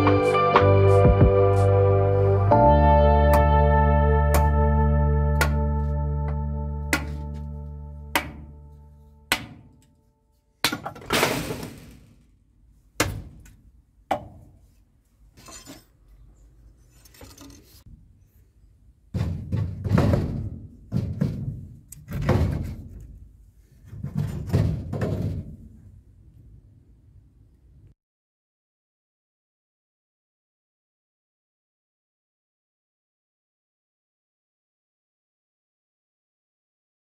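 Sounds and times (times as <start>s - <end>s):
background guitar music: 0.0s - 9.3s
billhook knocking on wood: 6.9s - 7.2s, 8.2s - 8.5s.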